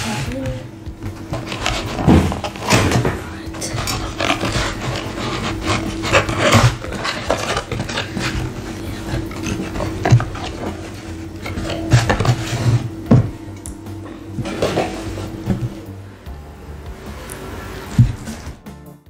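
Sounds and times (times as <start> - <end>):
cardboard rustling and scraping: 1.0 - 13.3, 14.3 - 15.8, 17.9 - 18.6
cardboard crackles: 1.1 - 13.1.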